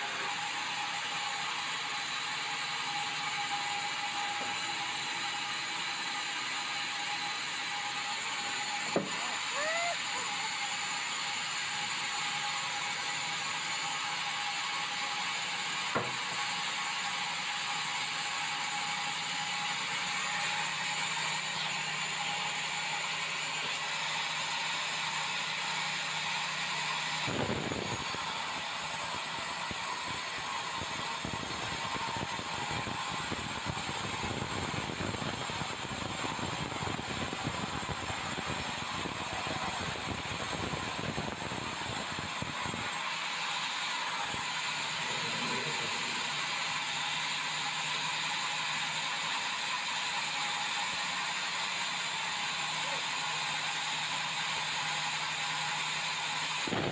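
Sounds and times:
band saw blade sawing wood: 8.4s - 11.0s, 42.0s - 48.7s.

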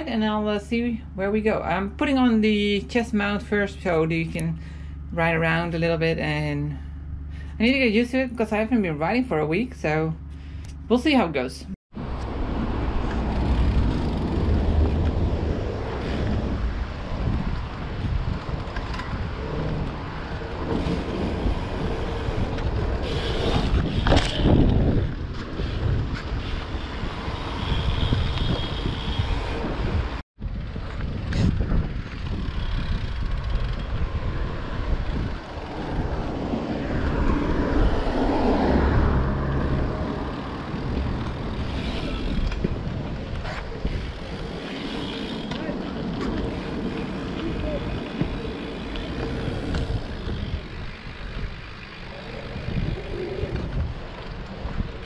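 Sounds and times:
wind buffeting microphone: 11.9s - 55.0s.

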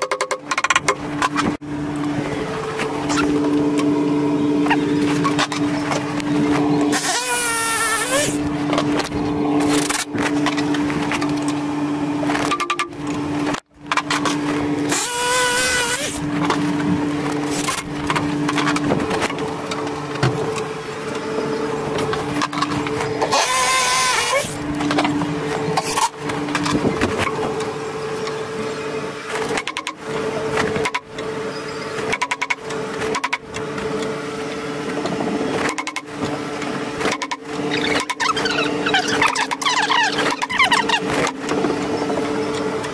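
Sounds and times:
steady hum: 0.3s - 42.9s
power drill whirring into wood: 6.9s - 8.4s, 14.9s - 16.2s, 23.2s - 24.6s.

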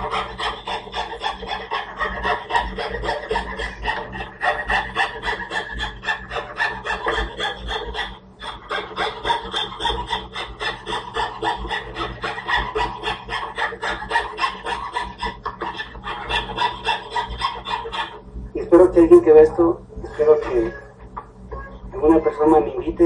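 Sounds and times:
fretsaw cutting wood: 0.0s - 18.2s.

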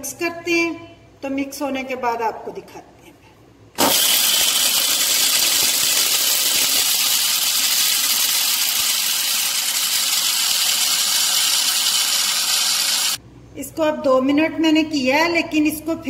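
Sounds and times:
electric spice grinder whirring: 3.8s - 13.2s.

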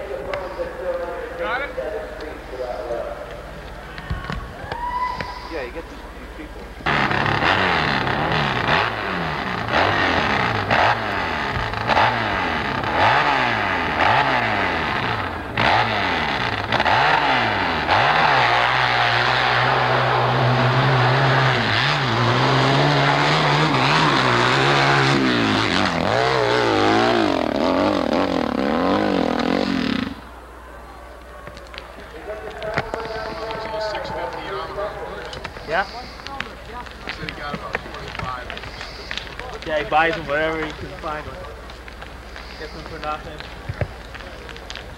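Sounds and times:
dirt bike engine revving: 6.6s - 30.3s.

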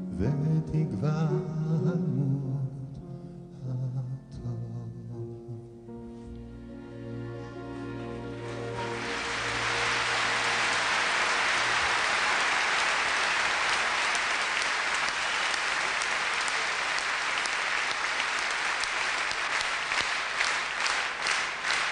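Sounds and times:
audience applauding: 7.8s - 21.9s.

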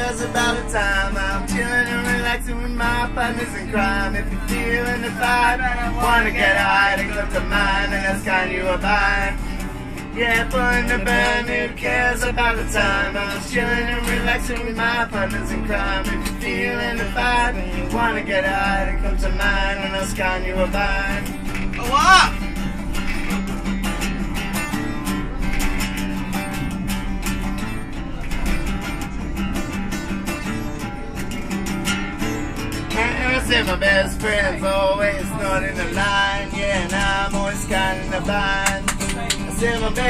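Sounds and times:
men singing: 0.0s - 21.3s, 32.9s - 40.0s
acoustic guitars strummed: 0.0s - 40.0s.

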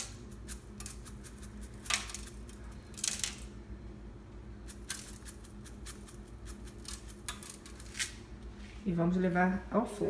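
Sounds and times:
spice shaker rattling: 0.0s - 3.4s, 4.7s - 7.9s.

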